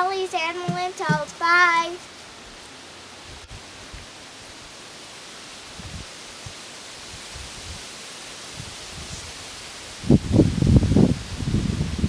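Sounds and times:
wind buffeting microphone: 10.0 - 12.0.

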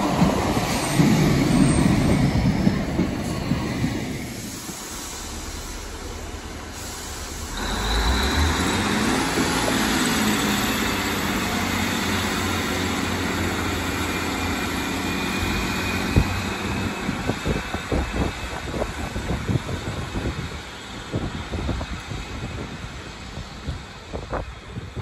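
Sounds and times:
train diesel engines under power: 0.0 - 25.0
wind buffeting microphone: 15.4 - 25.0.

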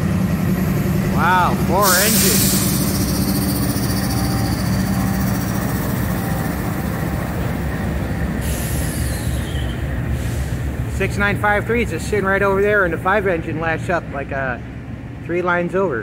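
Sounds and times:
train wheels on rails: 0.0 - 13.5
locomotive engine rumble: 0.0 - 16.0.

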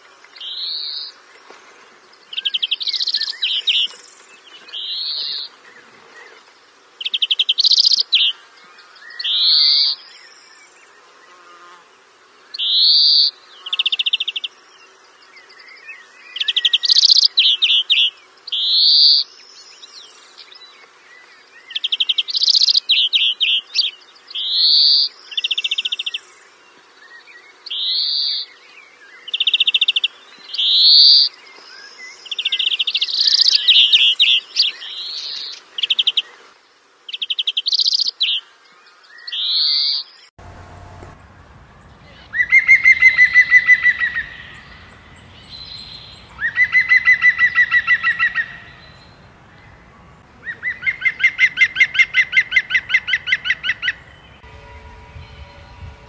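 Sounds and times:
birds chirping: 37.1 - 56.0
bird rapid pulsed call: 42.3 - 44.8.

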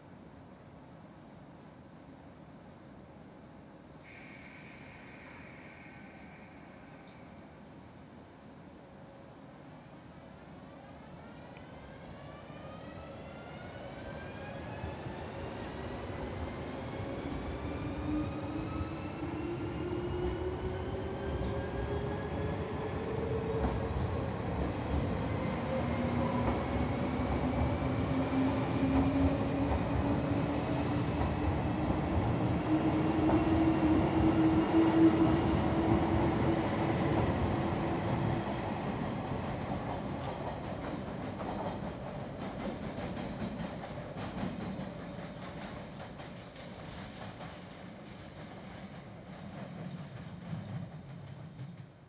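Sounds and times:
train wheels clacking over rail joints: 40.4 - 52.0.

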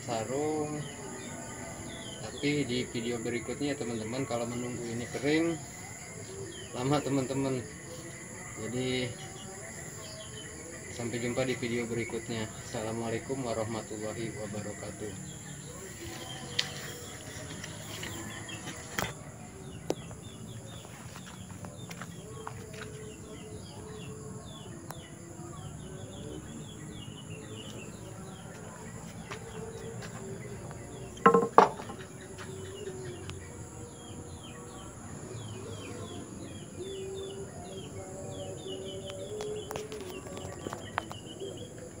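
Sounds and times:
birds chirping: 0.0 - 42.0
machete knocking on wooden stand: 31.2 - 32.0.

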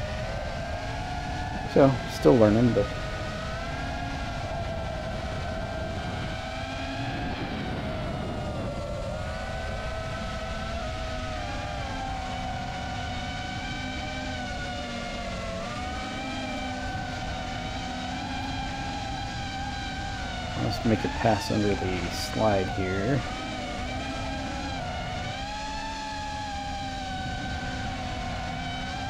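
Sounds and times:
drone motors whining: 0.0 - 29.0.

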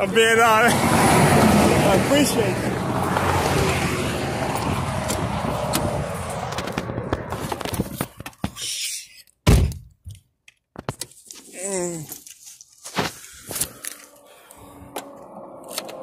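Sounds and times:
highway road noise: 0.0 - 9.0, 10.8 - 16.0
wind noise: 2.6 - 8.4.

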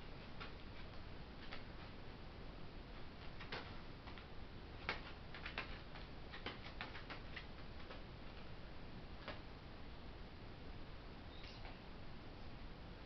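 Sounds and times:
bird feet on plastic sheeting: 2.9 - 8.6.

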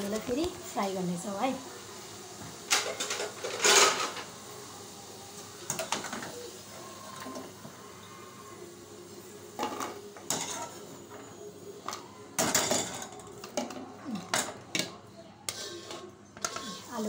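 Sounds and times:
utensils and crockery clattering: 2.6 - 4.4, 5.6 - 7.7, 9.6 - 17.0.

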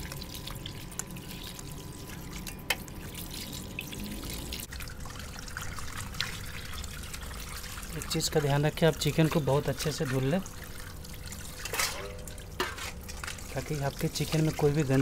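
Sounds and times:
hands rinsing raw chicken: 0.0 - 15.0
water pouring into metal pot: 0.0 - 15.0.

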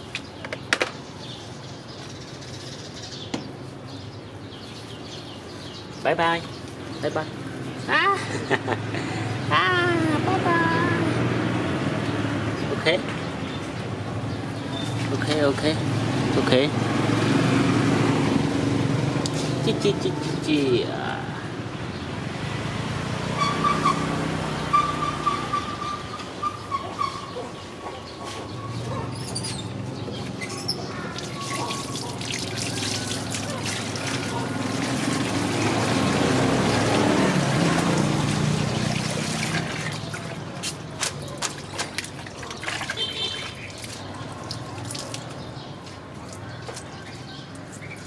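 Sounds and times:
water splashing in plastic basin: 31.1 - 45.5
water dripping: 31.1 - 46.9.

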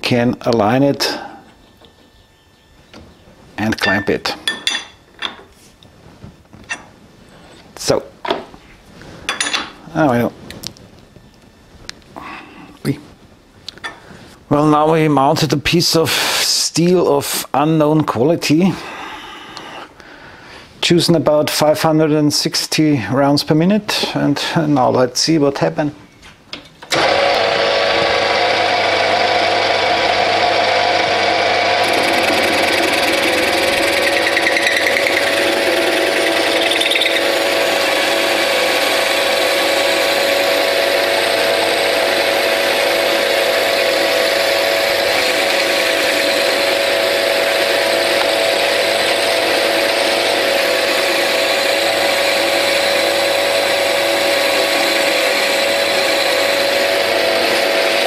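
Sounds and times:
metal lathe running: 26.9 - 58.0
parting tool cutting steel: 31.7 - 58.0.

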